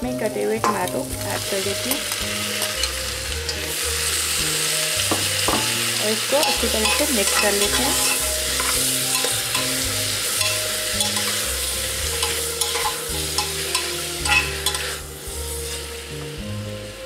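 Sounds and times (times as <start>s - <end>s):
vegetables sizzling in butter: 0.0s - 17.0s
spatula scraping and clicking on pot: 6.4s - 11.5s, 12.1s - 15.0s.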